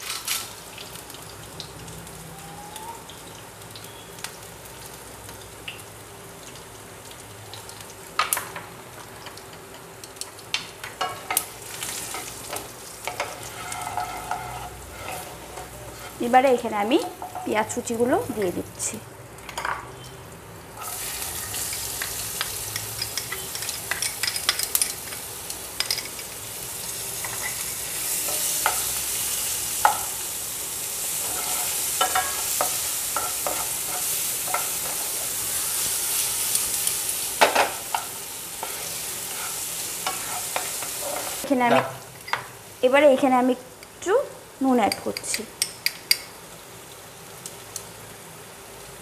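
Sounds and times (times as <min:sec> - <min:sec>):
onions sizzling in oil: 0:00.0 - 0:49.0
wooden spatula scraping pan: 0:13.1 - 0:16.4, 0:38.6 - 0:42.0.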